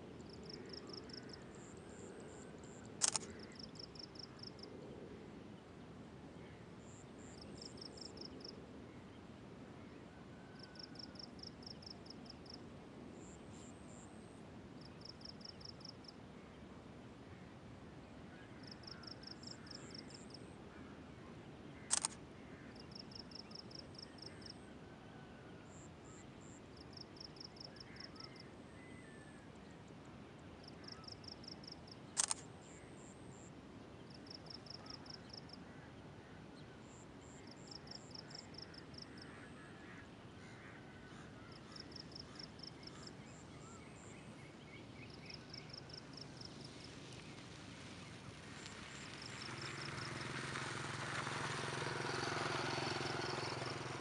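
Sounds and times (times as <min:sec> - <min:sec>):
low background noise: 0:00.0 - 0:54.0
sharp clicks: 0:03.0 - 0:03.4, 0:21.9 - 0:22.2, 0:32.2 - 0:32.5.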